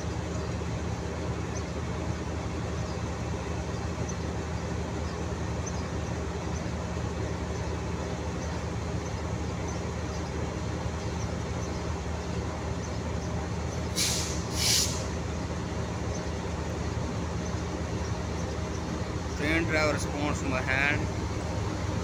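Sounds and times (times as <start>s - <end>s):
locomotive engine humming: 0.0s - 22.0s.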